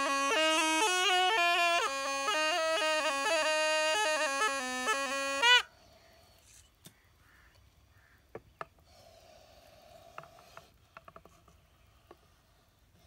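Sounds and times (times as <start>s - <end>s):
reedy pipe melody: 0.0s - 5.7s.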